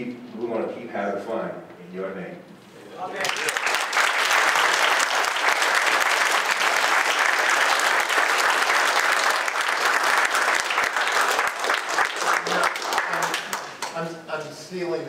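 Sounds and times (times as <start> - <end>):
audience applauding: 3.1 - 14.0.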